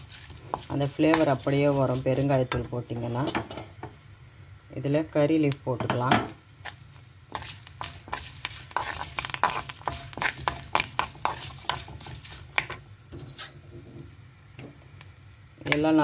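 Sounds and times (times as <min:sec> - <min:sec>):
ghee sizzling: 0:00.0 - 0:16.0
spoon scraping metal pan: 0:07.3 - 0:13.5.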